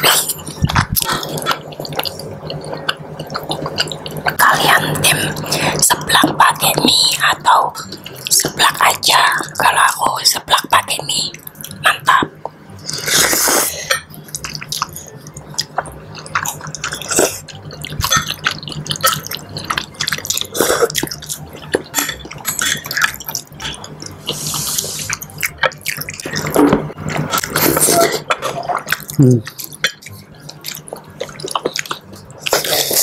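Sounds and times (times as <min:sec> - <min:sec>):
wet chewing: 0:11.3 - 0:33.0.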